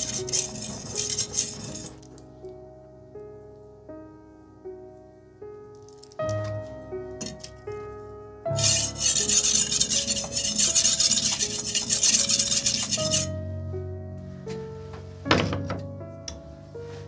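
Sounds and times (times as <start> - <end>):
knife scraping on whetstone: 0.0 - 2.0, 8.6 - 13.3
soft piano music: 0.0 - 17.0.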